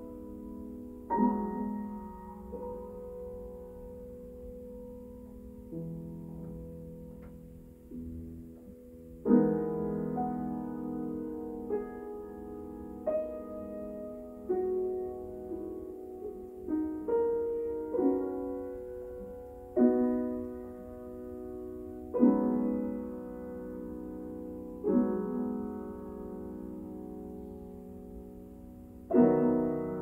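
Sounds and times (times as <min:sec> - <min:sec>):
piano chords: 0:00.0 - 0:30.0.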